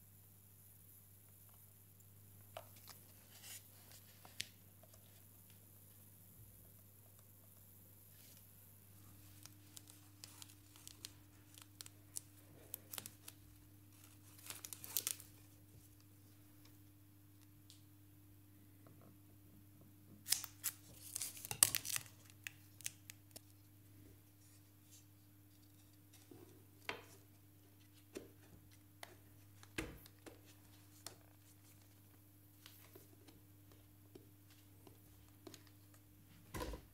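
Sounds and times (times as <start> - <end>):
faint steady hum: 0.0 - 36.9
tape liner peeling crackles: 9.2 - 15.5, 20.2 - 23.5.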